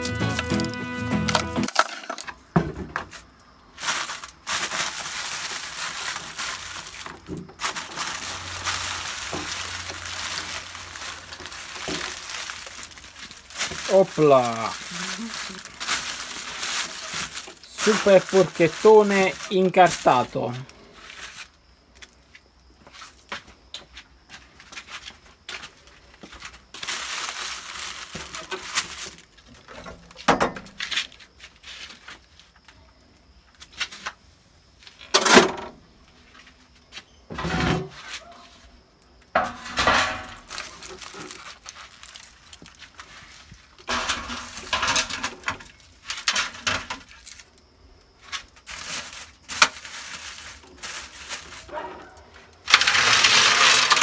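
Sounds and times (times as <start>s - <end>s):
metal tray clattering and scraping: 1.6s - 2.3s, 37.3s - 38.0s, 39.4s - 41.3s, 43.9s - 47.1s, 51.4s - 54.0s.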